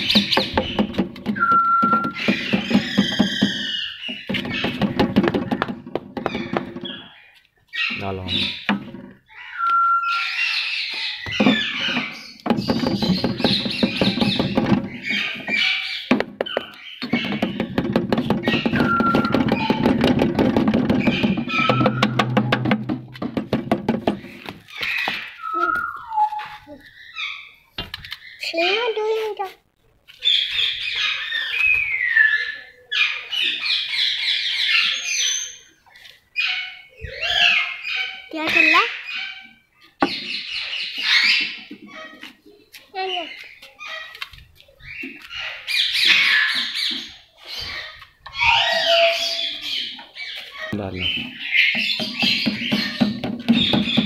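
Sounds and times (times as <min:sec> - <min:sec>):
rapid clattering knocks: 0:00.0 - 0:06.9, 0:11.3 - 0:24.4, 0:51.2 - 0:54.0
cage birds chirping and squawking: 0:00.0 - 0:29.5, 0:30.1 - 0:54.0.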